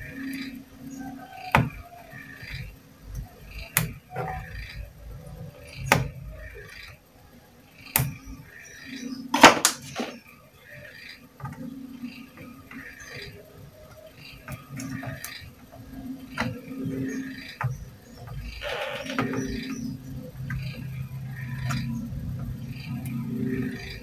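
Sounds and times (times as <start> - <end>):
low steady hum: 11.6 - 24.0.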